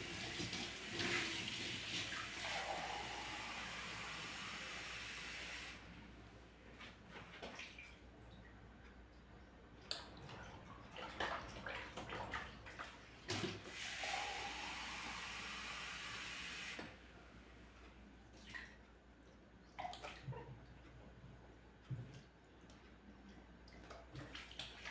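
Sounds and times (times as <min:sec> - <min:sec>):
sink tap running: 0:13.7 - 0:16.8.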